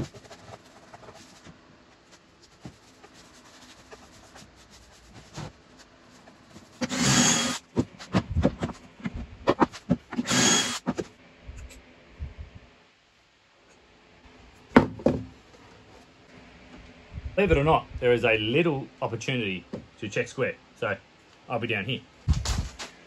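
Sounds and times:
paintbrush rubbing on wood: 2.4 - 6.3
cordless drill boring into wood: 6.8 - 7.6, 10.2 - 10.8.

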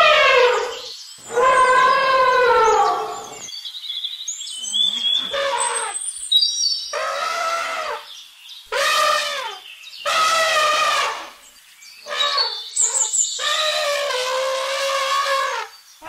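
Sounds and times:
elephant trumpeting: 0.0 - 3.5, 5.0 - 6.0, 6.9 - 8.1, 8.7 - 11.4, 12.1 - 15.8.

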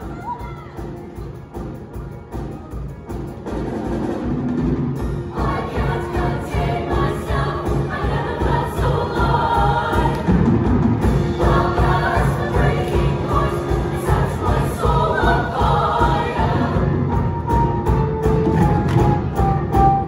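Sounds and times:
instrumental accompaniment with beat: 0.0 - 20.0
choir singing pop song: 5.2 - 17.6.

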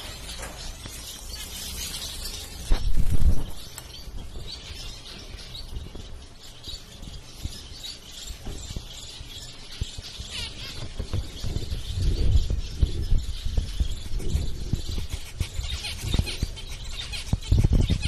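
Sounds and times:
finches chirping: 0.0 - 18.0
low rumbling bumps: 9.8 - 16.6.

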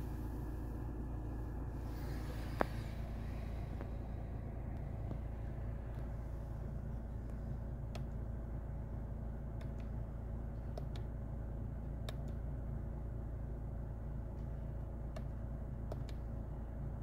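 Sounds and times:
diesel engine idling: 0.0 - 17.0
faint steady whine: 0.0 - 17.0
light sharp clicks: 10.6 - 11.1.

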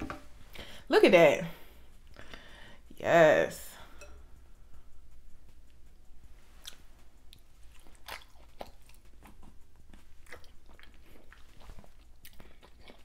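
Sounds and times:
person chewing: 5.5 - 13.0.

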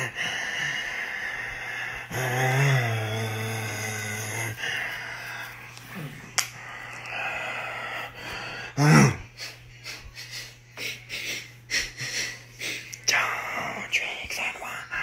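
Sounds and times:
breathing and sniffing: 3.1 - 13.0.

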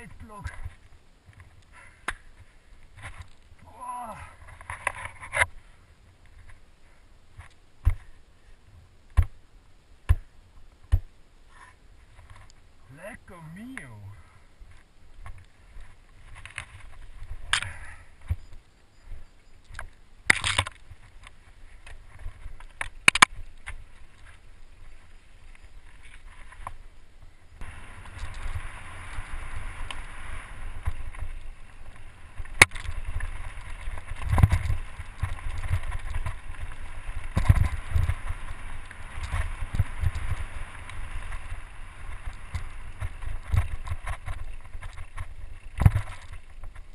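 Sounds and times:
tyre rumble on dirt trail: 14.6 - 46.9
wind noise: 14.6 - 46.9
bike rattling over bumps: 19.8 - 46.9.

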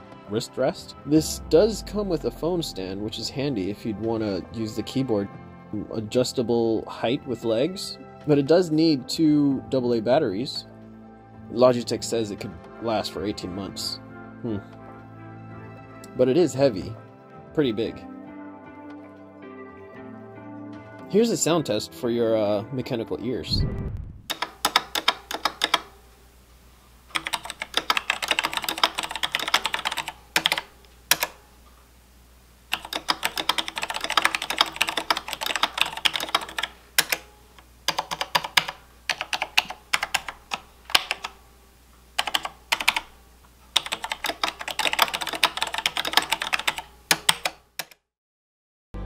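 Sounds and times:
mechanical keyboard typing: 24.3 - 25.9, 27.1 - 31.4, 32.7 - 37.3, 37.9 - 41.4, 42.2 - 43.1, 43.8 - 48.0.

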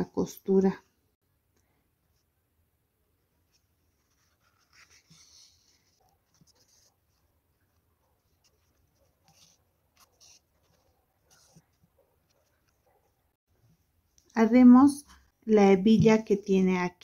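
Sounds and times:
thread rustling through yarn: 3.4 - 14.4.

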